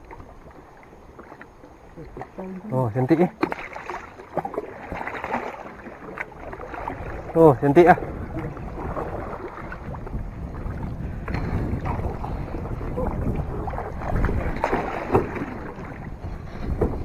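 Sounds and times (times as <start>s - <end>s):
paddles splashing in water: 0.0s - 17.0s
wind rumbling on microphone: 4.6s - 17.0s.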